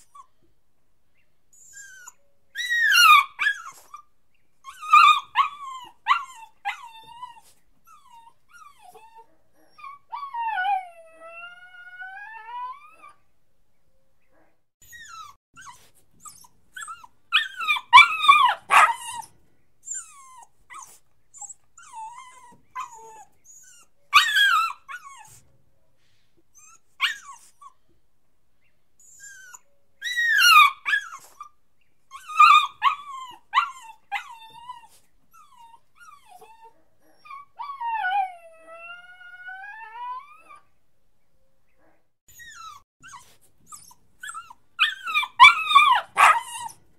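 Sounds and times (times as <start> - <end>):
puppy whining and crying: 0.0 - 0.5, 1.5 - 13.2, 14.8 - 25.6, 26.5 - 27.9, 29.0 - 40.8, 42.3 - 46.9
puppy yelping: 2.0 - 4.0, 14.8 - 19.3, 24.1 - 25.4, 29.5 - 31.5, 32.2 - 40.6, 42.3 - 46.9.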